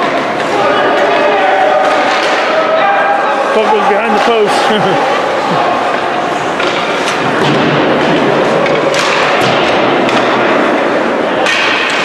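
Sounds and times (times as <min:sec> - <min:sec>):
hockey sticks and puck knocking: 0:00.0 - 0:02.6, 0:05.9 - 0:12.0
noisy rink background: 0:00.0 - 0:12.0.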